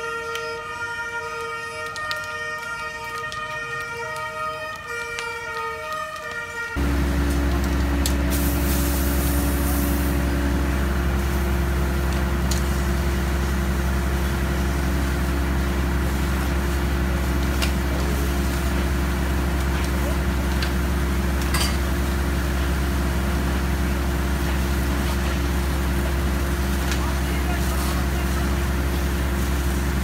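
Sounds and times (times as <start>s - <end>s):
sustained tones: 6.8s - 19.1s
hose spraying water: 6.8s - 30.0s
pump engine droning: 6.8s - 30.0s.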